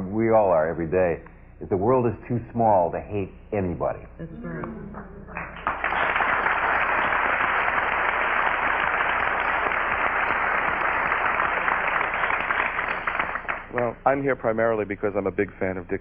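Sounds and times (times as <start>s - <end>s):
audience applauding: 5.3s - 14.0s.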